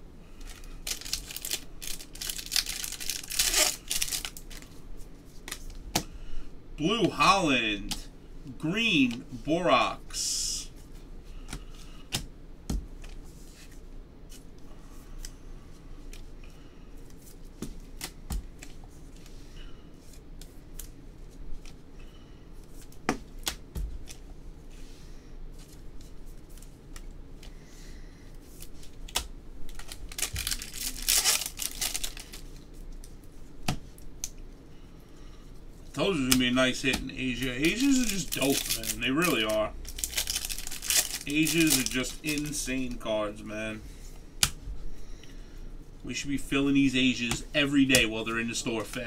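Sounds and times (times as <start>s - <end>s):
crinkling rustle: 0.3s - 5.8s, 28.4s - 33.3s, 35.9s - 43.0s
cards clicking and sliding: 36.1s - 42.6s.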